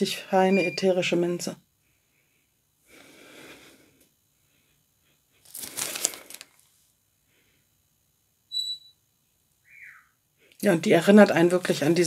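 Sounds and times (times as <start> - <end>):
plastic bag crinkling: 5.4 - 6.8.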